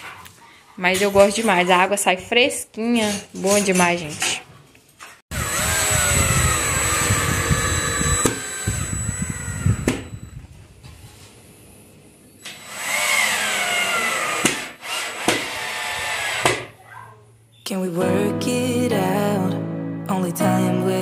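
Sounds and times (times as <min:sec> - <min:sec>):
cordless drill driving screws: 0:05.4 - 0:10.1, 0:12.4 - 0:16.7
drill clicks: 0:05.4 - 0:10.1.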